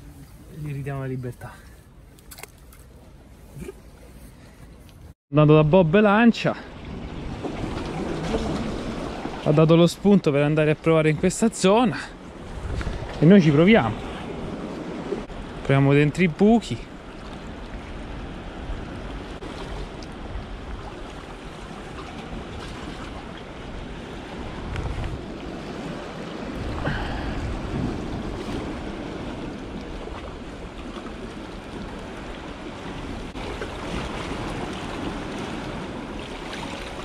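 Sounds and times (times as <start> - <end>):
sea waves washing against rocks: 7.0 - 37.0
wind buffeting microphone: 12.3 - 15.7, 17.0 - 37.0.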